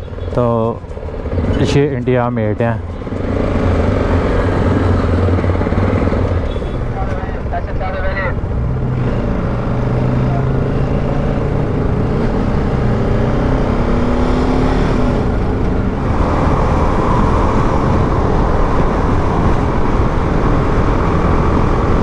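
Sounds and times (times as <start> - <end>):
motorcycle engine accelerating: 0.0 - 7.5, 8.2 - 22.0
wind rush: 14.8 - 22.0.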